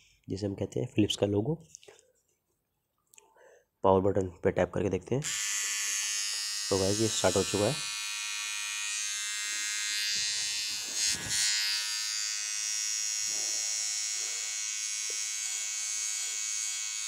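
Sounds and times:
electric trimmer buzzing: 0:05.2 - 0:17.0.

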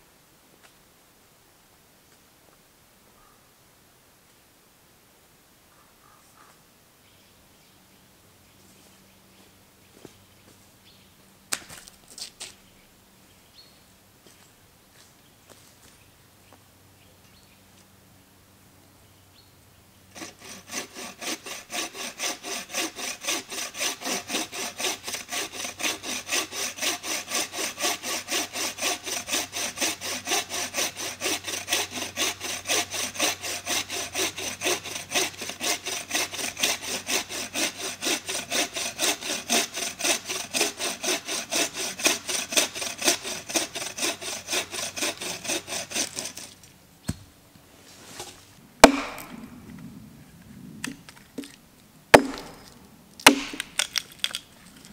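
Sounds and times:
bow saw cutting log: 0:20.1 - 0:47.2, 0:48.1 - 0:49.5, 0:52.1 - 0:54.4.

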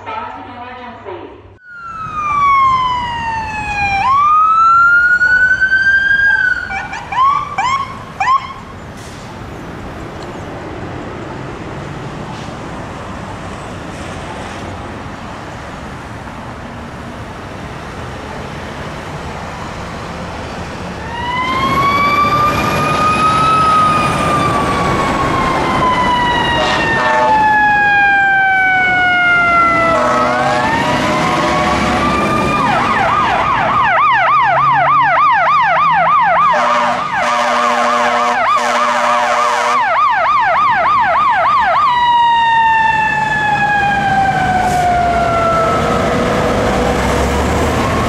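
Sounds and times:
traffic noise: 0:00.0 - 0:48.0
ambulance siren wailing and whooping: 0:01.6 - 0:08.7, 0:21.0 - 0:48.0
fire engine siren wail: 0:01.6 - 0:08.8, 0:15.0 - 0:48.0.

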